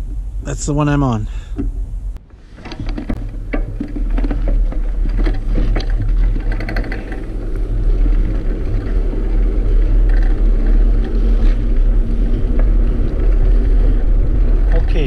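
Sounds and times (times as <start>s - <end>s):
bicycle tyre rumble: 0.0s - 15.0s
wind buffeting microphone: 0.0s - 15.0s
sharp clicks and knocks: 2.6s - 7.3s.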